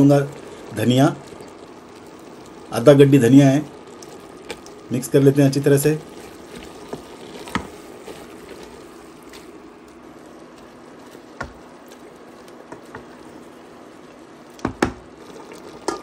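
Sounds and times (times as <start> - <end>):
meat sizzling in a pot: 0.0 - 16.0
wooden spoon knocking on pot: 11.4 - 11.6, 12.7 - 13.1, 14.6 - 15.1.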